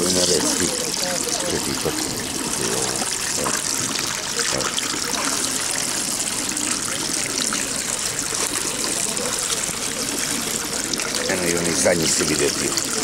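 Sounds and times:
water running into troughs: 0:00.0 - 0:13.0.

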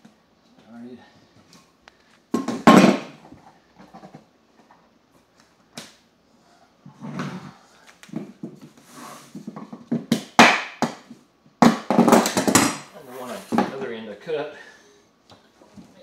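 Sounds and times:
knocks and clicks of planks: 0:02.3 - 0:03.2, 0:09.4 - 0:12.8.

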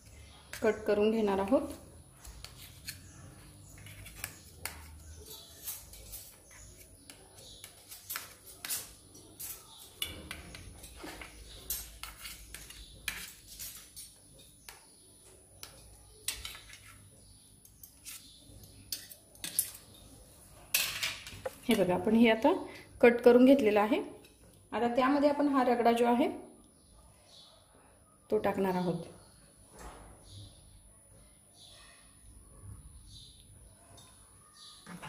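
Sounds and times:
knife scraping on steel plate: 0:02.4 - 0:14.2.

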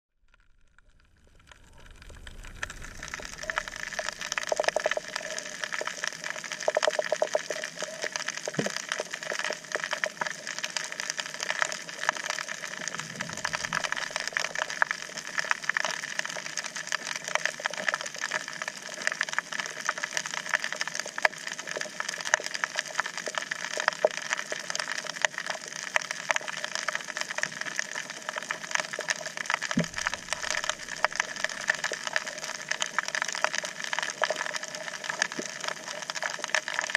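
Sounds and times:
snapping shrimp clicks underwater: 0:02.3 - 0:36.9.

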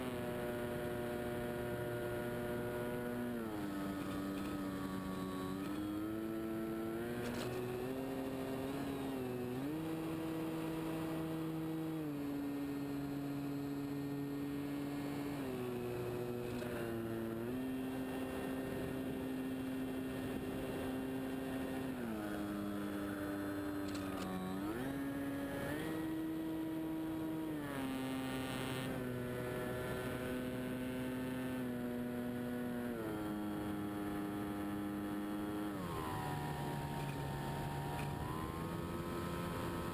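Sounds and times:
model airplane motor drone: 0:00.0 - 0:39.9.

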